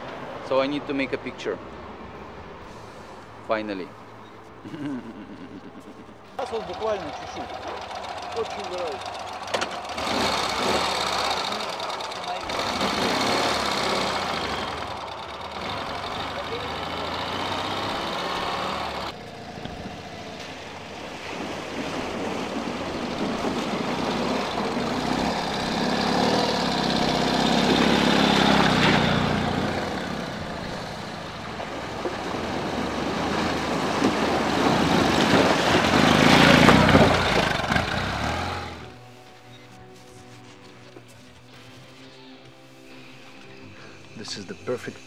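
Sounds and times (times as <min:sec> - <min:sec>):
motorcycle engines running: 0:04.7 - 0:20.5, 0:22.8 - 0:39.0
water splashing: 0:06.3 - 0:26.1, 0:27.0 - 0:38.5.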